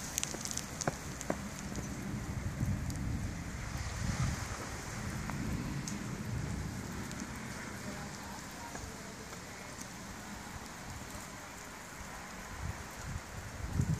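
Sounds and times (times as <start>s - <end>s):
drops ticking: 0.0s - 2.0s
snow dripping from branches: 0.0s - 13.9s.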